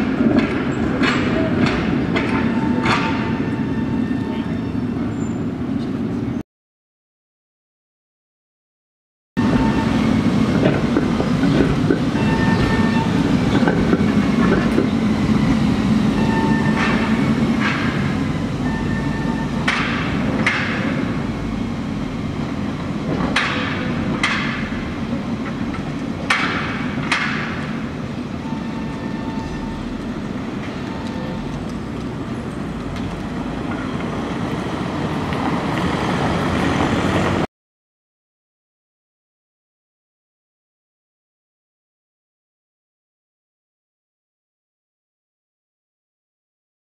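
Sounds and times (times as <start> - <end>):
wheels clacking over rail joints: 0.0 - 4.3, 9.4 - 37.5
tram wheels and motors rumbling: 0.0 - 6.4, 9.4 - 37.5.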